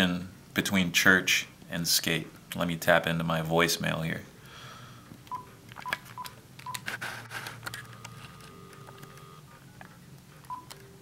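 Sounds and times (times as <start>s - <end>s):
keypad beeps: 5.3s - 6.9s, 7.7s - 9.4s, 10.4s - 11.0s
phone handset steady tone: 7.8s - 9.5s.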